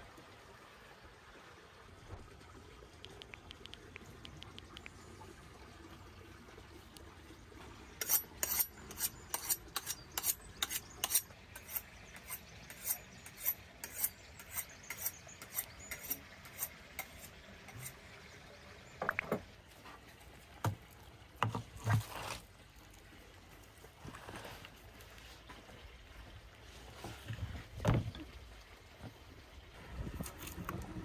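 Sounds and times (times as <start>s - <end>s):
knife scraping on sharpening steel: 8.0s - 17.9s.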